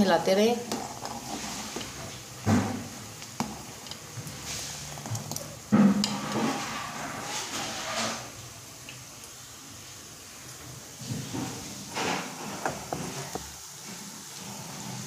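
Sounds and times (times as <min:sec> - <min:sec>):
ladle scraping metal pot: 0:00.7 - 0:02.1, 0:06.0 - 0:08.4.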